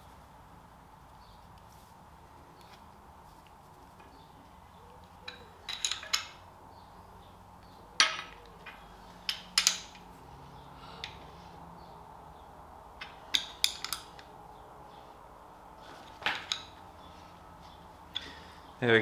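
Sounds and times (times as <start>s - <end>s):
spanner clinking on bolt heads: 5.2s - 6.4s, 8.0s - 10.1s, 13.0s - 14.3s.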